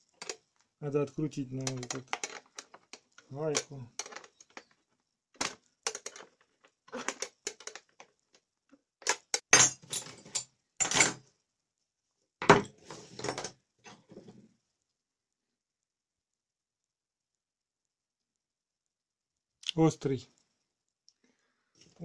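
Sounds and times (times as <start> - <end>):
metal tools clinking on table: 9.0 - 11.2.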